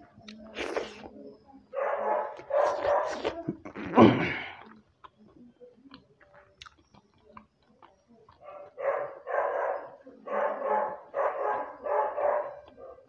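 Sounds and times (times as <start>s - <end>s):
dog barking drawn-out barks: 1.8s - 3.3s, 8.4s - 13.0s.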